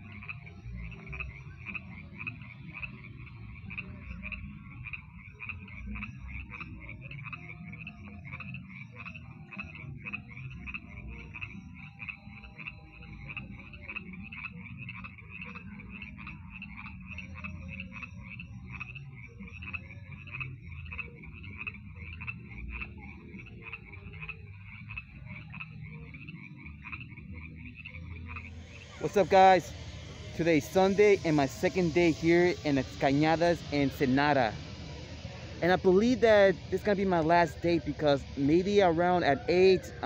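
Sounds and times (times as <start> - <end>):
frogs croaking: 0.0 - 40.0
low steady rumble: 26.8 - 40.0.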